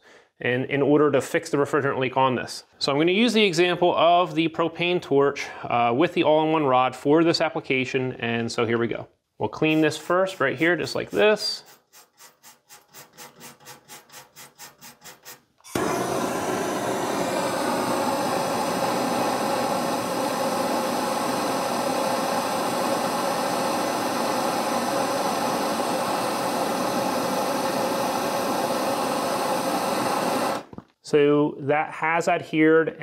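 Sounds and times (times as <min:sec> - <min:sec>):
wire brush scrubbing metal: 0:09.8 - 0:15.5
torch hissing: 0:14.9 - 0:30.8.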